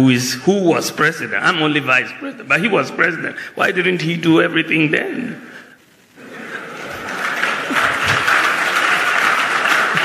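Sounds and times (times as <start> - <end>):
audience applauding: 6.2 - 10.0.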